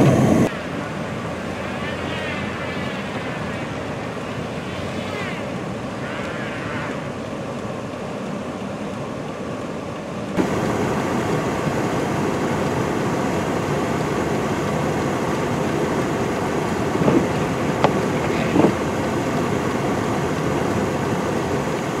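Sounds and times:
truck engine running: 0:00.0 - 0:00.5, 0:10.3 - 0:22.0
wind blowing over microphone: 0:00.0 - 0:00.5, 0:10.4 - 0:22.0.

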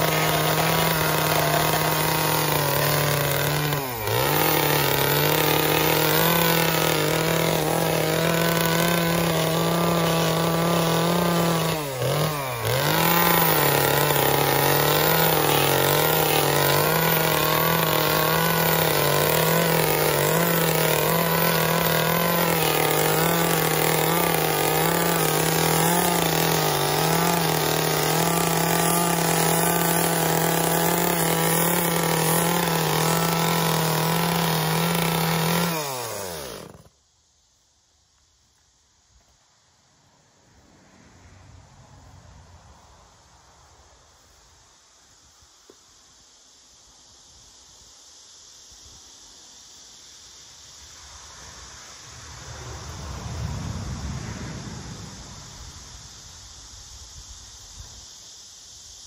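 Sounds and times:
chainsaw carving wood: 0:00.0 - 0:37.0.

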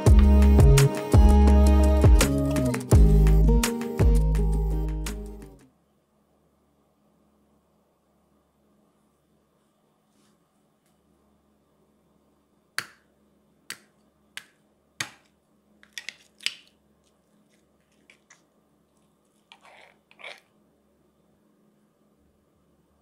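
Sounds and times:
spoon cracking sugar crust: 0:15.0 - 0:18.5.

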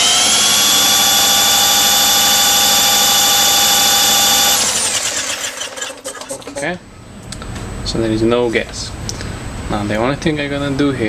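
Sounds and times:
electric drill whining: 0:00.0 - 0:06.7
engine turning over: 0:00.0 - 0:06.8.

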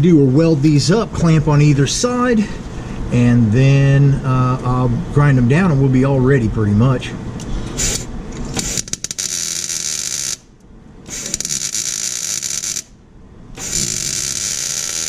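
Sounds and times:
welder crackling and sizzling: 0:07.8 - 0:10.5, 0:11.1 - 0:12.9, 0:13.6 - 0:15.0.

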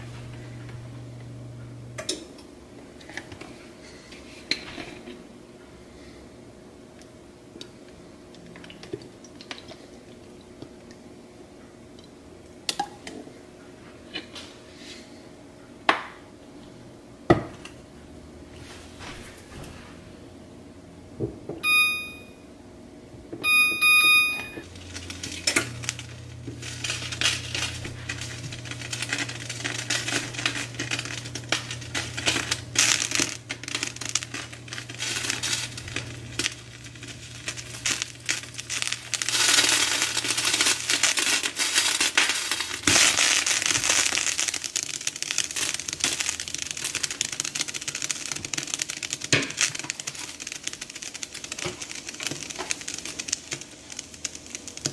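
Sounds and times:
short electronic beeps: 0:21.6 - 0:22.4, 0:23.4 - 0:24.6
oil sizzling in a frying pan: 0:24.7 - 0:54.9.

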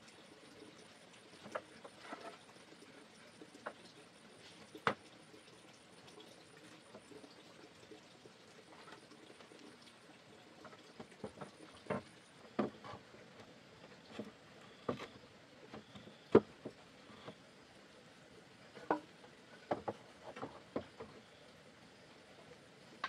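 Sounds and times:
light taps and knocks: 0:10.6 - 0:13.5, 0:18.8 - 0:21.2.

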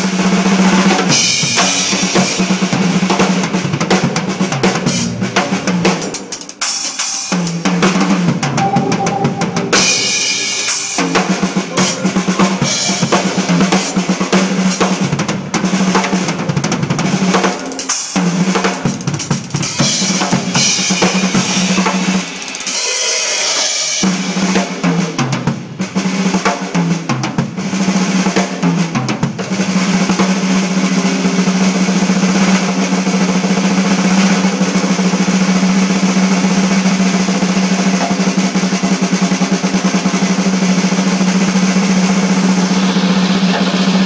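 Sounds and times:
fast drum roll: 0:00.0 - 0:44.0
tom drum fills: 0:07.5 - 0:15.2
cymbal crashes: 0:08.5 - 0:13.4.

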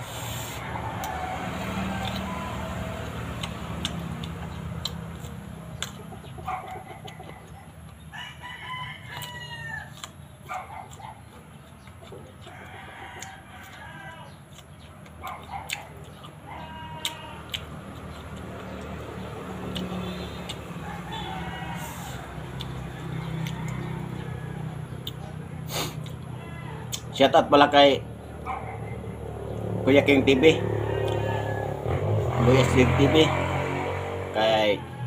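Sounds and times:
chickens clucking: 0:00.0 - 0:08.1, 0:09.1 - 0:33.0
crunchy chewing: 0:00.0 - 0:27.2, 0:30.9 - 0:33.7
rooster crowing: 0:00.5 - 0:04.2, 0:08.1 - 0:10.0, 0:12.4 - 0:14.4, 0:19.7 - 0:25.4, 0:26.2 - 0:27.0, 0:29.1 - 0:35.0.

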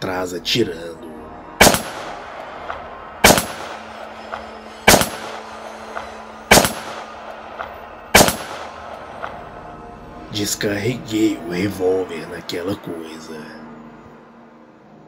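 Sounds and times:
revolver shots with echo: 0:01.6 - 0:02.2, 0:08.2 - 0:08.8.

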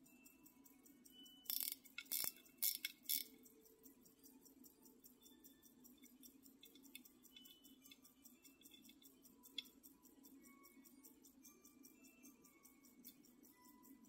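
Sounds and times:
pocket watch ticking: 0:00.0 - 0:14.0
metallic clicks and scrapes: 0:01.4 - 0:03.6, 0:05.9 - 0:09.8.

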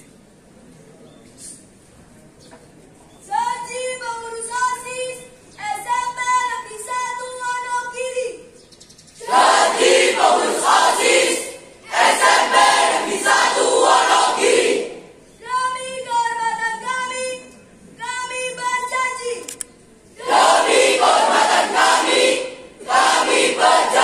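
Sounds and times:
group reciting in unison: 0:09.2 - 0:15.2, 0:20.2 - 0:24.0.

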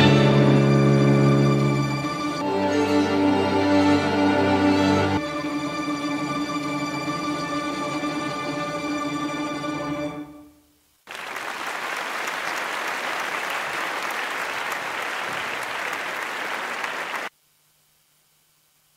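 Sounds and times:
sustained music chord: 0:00.0 - 0:10.6
applause sample: 0:11.1 - 0:17.3.

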